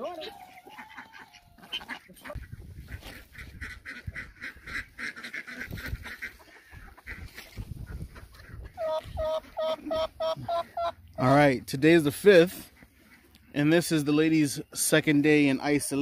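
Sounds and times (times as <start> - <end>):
ducks calling: 0.0 - 16.0.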